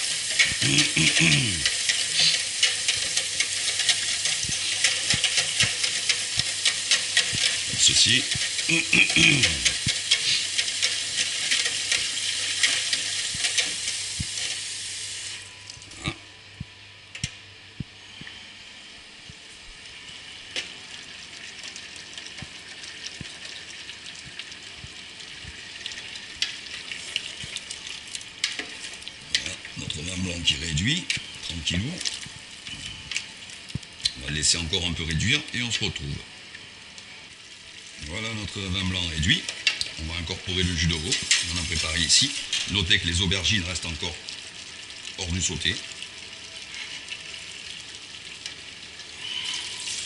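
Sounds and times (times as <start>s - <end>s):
metal utensil stirring in pot: 0.0s - 14.6s
tap water running into pot: 0.0s - 15.8s, 19.2s - 50.0s.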